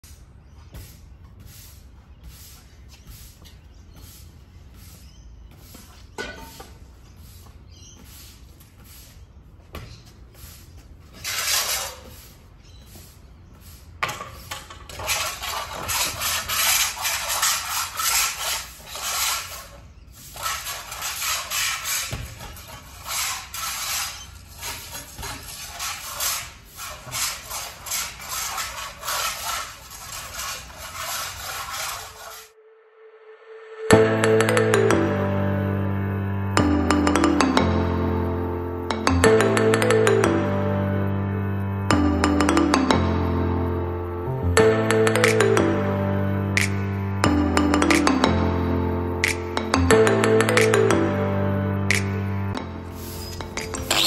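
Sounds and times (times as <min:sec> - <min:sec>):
scraper scraping concrete floor: 0:00.0 - 0:32.6, 0:51.9 - 0:54.0.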